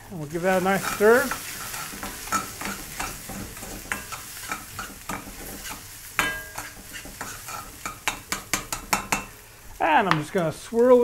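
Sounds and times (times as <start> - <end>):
spices sizzling in pan: 0.0 - 11.0
metal ladle scraping pan: 0.5 - 9.4
ladle clanging on pan: 0.9 - 9.3.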